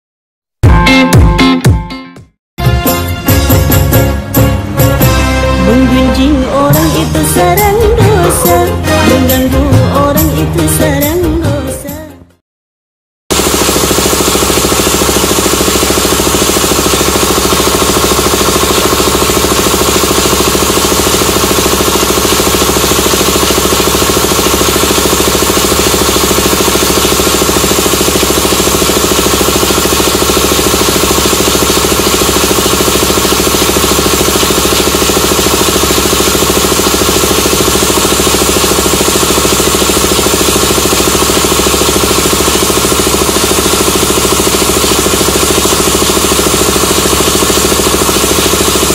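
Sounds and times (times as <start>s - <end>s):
air compressor clatter and hum: 6.6s - 9.5s, 13.3s - 48.9s.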